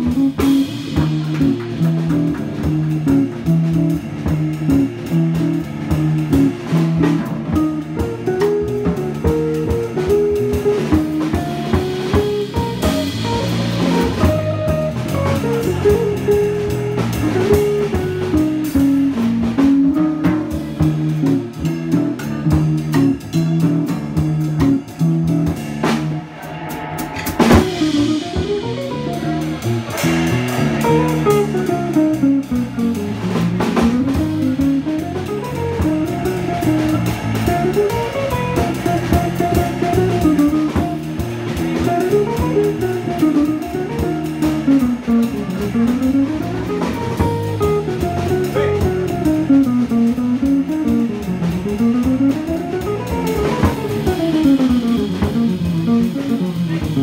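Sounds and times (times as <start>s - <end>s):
drum kit keeping time: 0.0s - 57.0s
guitar runs: 24.7s - 57.0s
cymbal crash: 25.7s - 31.4s.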